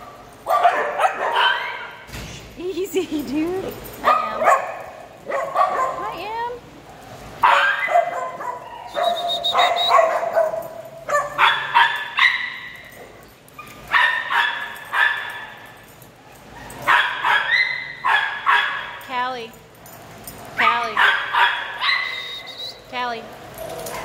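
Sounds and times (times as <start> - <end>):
small dogs yapping: 7.4 - 12.9, 16.5 - 18.9, 20.6 - 22.5.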